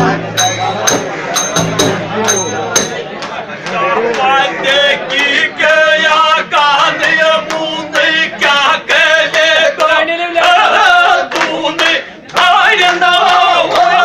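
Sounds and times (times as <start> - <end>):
men chant-like singing: 3.6 - 14.0.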